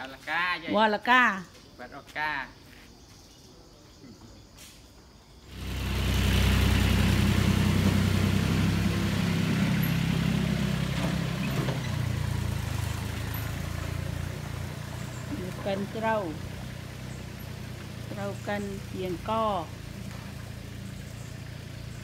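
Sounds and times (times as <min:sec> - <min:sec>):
small truck engine: 0:05.4 - 0:22.0.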